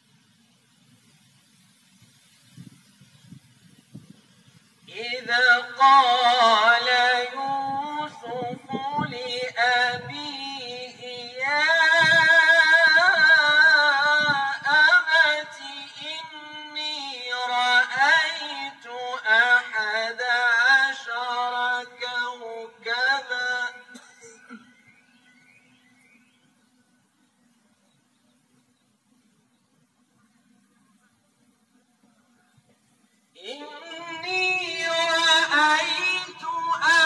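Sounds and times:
man chanting melodically: 4.9 - 24.7, 33.4 - 37.0.

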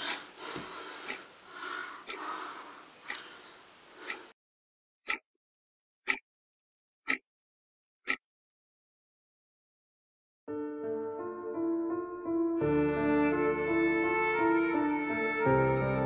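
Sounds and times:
alarm clock ticking: 1.0 - 1.2, 2.0 - 2.3, 5.0 - 5.2, 6.0 - 6.2, 7.0 - 7.2, 8.0 - 8.2.

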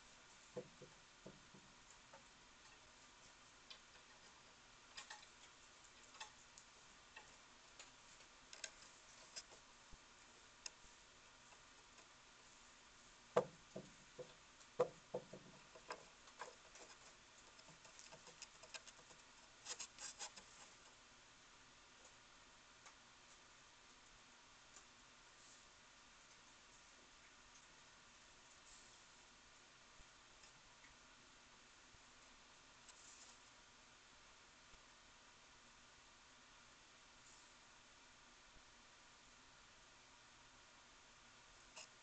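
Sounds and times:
claws scratching on wood: 14.2 - 21.0.

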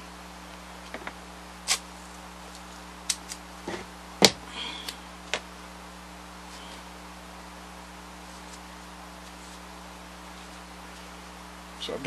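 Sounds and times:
tape peeling from roll: 1.6 - 3.9.

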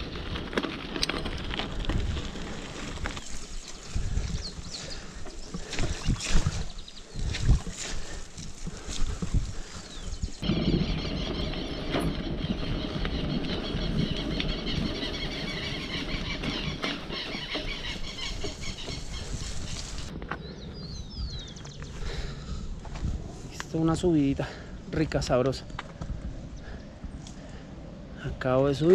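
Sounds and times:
bike rattling on rough dirt road: 0.0 - 23.1
bike tyres rolling: 0.0 - 23.5
wind on microphone: 1.2 - 24.0.

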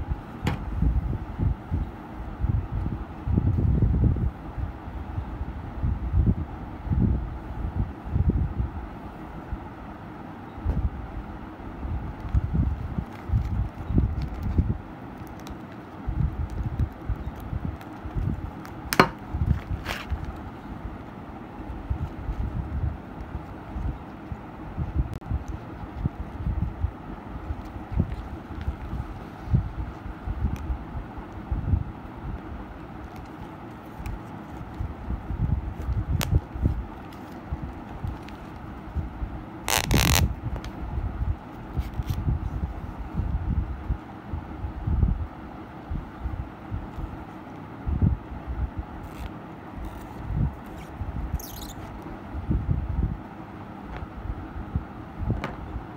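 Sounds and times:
leather belt handling noise: 12.2 - 14.6, 15.2 - 20.5, 39.6 - 40.7, 49.0 - 51.9.

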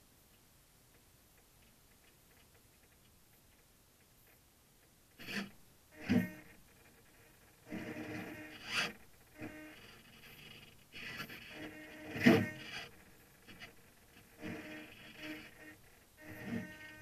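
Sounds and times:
servos whirring: 5.2 - 6.6, 7.6 - 17.0.

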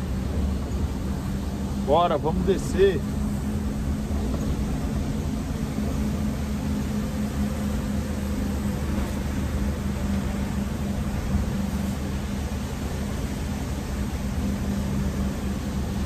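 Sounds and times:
truck engine drone: 0.0 - 16.0
tyre hiss on wet road: 11.5 - 14.4.

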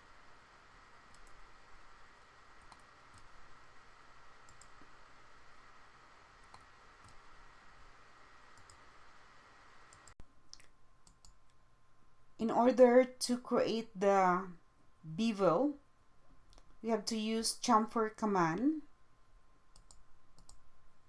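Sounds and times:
faint room hiss: 0.0 - 21.0
computer mouse clicks: 1.1 - 1.4, 2.6 - 3.3, 4.5 - 4.8, 6.4 - 7.2, 8.6 - 8.8, 9.9 - 11.6, 19.7 - 20.6.

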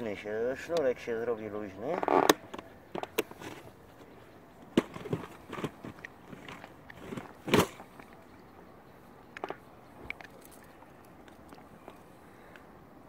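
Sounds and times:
cord rustling and clicking: 1.9 - 8.2, 9.4 - 12.1.

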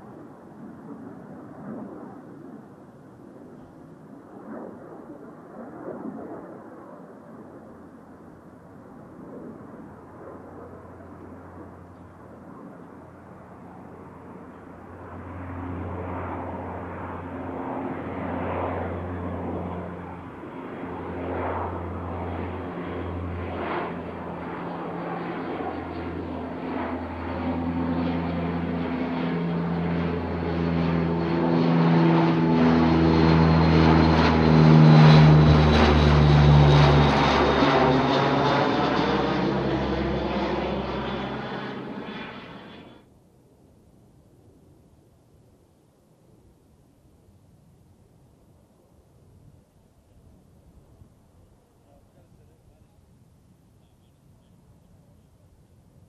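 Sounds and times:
propeller aircraft flying past: 0.0 - 56.0.

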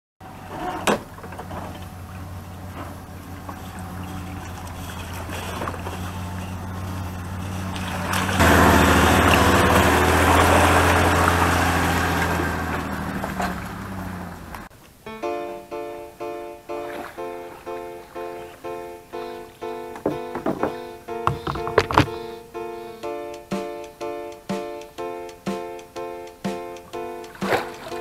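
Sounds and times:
truck engine running and revving: 0.2 - 14.7.

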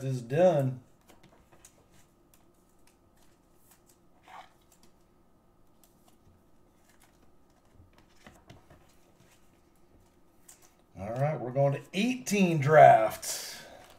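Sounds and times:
plastic card holders rustling: 0.4 - 11.3.

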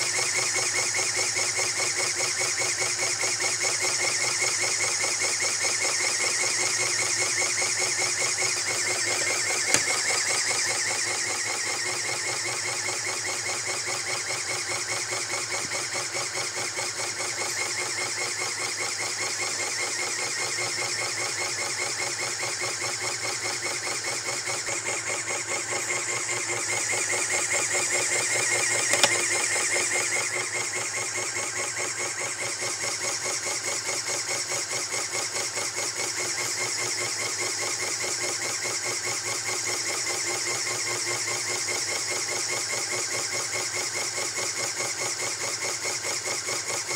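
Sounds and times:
toy pneumatic engine clattering: 8.4 - 10.4, 28.0 - 30.1
click: 9.0 - 10.1, 28.8 - 29.5.

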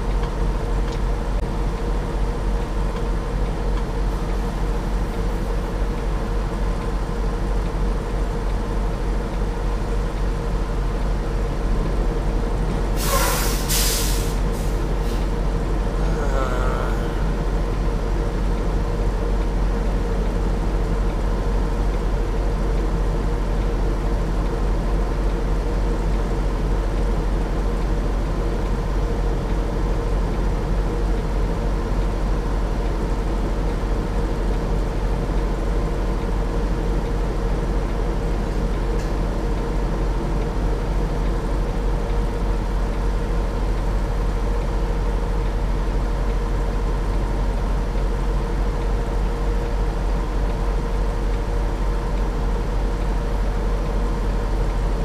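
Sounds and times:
diesel truck engine idling: 0.0 - 23.9.

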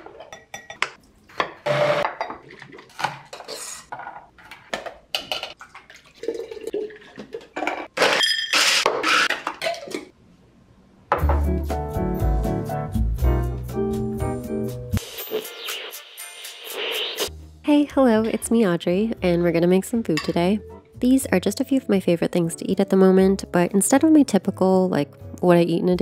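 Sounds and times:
glass and utensils clinking: 0.2 - 0.9
music: 11.1 - 26.0.

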